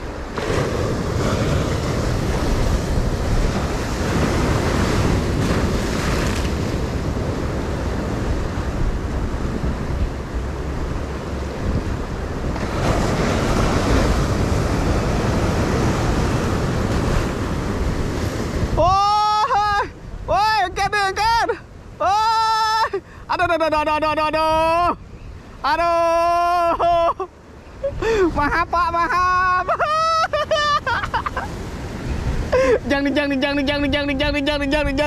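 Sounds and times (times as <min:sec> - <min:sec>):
wind buffeting microphone: 0:00.0 - 0:21.9
sea waves breaking over rocks: 0:00.0 - 0:23.4, 0:24.6 - 0:35.0.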